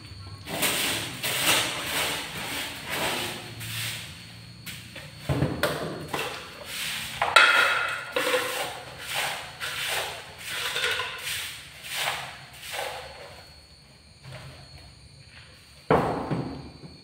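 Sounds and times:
plastic plate scraping on tile floor: 6.1 - 11.3.

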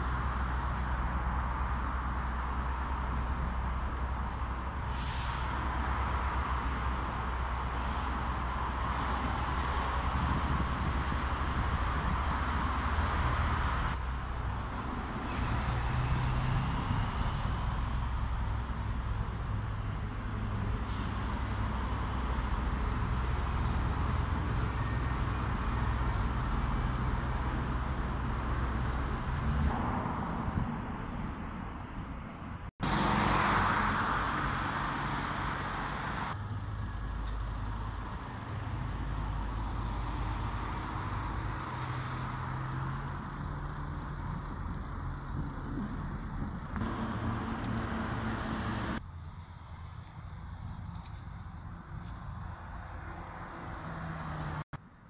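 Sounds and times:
traffic engine hum: 0.0 - 55.0
vehicle passing: 38.6 - 49.0.

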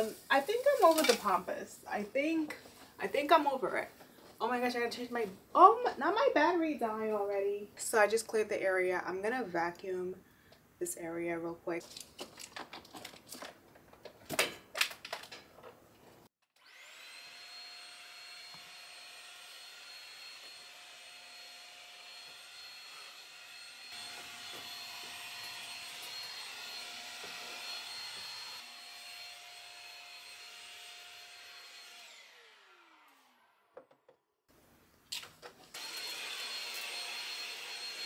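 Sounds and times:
handheld vacuum cleaner running: 16.6 - 33.3, 35.7 - 38.0.

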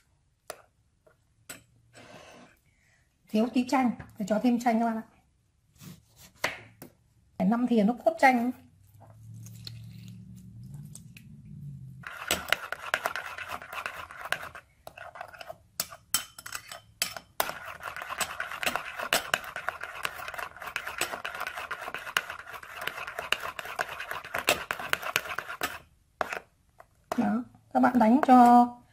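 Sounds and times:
low hum: 9.0 - 12.1.

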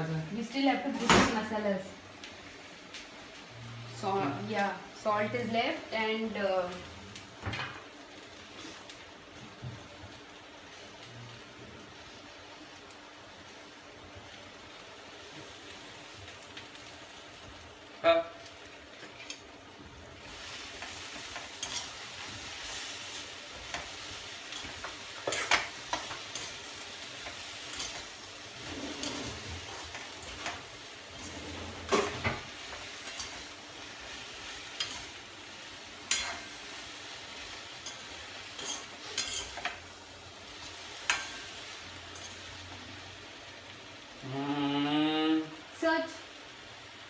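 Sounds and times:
okra sizzling in a pan: 0.0 - 47.0
spatula scraping a pan: 27.2 - 33.5, 37.8 - 39.8.

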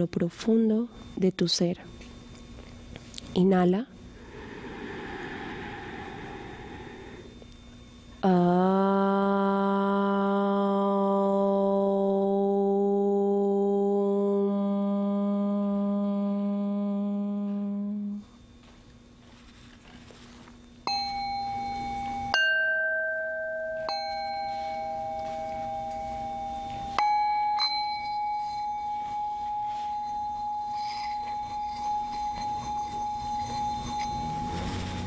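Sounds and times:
singing bowl ringing: 4.1 - 8.7, 20.8 - 35.0
woman humming: 8.2 - 18.4
singing bowls struck with mallet: 20.8 - 35.0.

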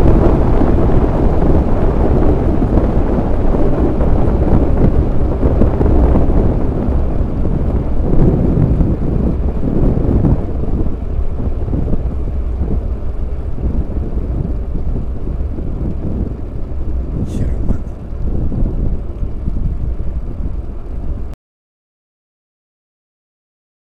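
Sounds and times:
wind rushing over microphone: 0.0 - 21.4.

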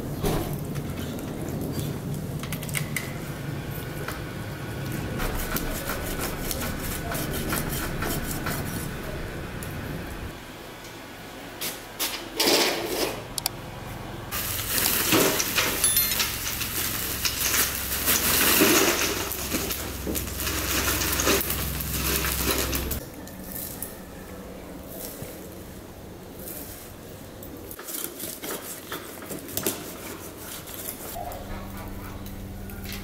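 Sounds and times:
small pieces pouring into bucket: 14.4 - 23.0.

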